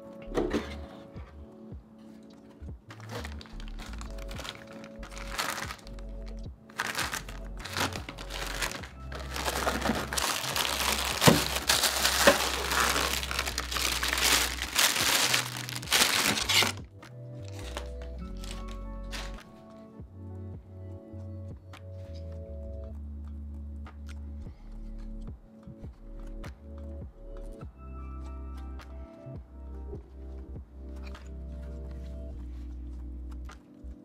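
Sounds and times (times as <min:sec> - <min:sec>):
soft background music: 0:00.0 - 0:34.0
plastic wrap crinkling: 0:02.3 - 0:16.8, 0:17.4 - 0:19.5.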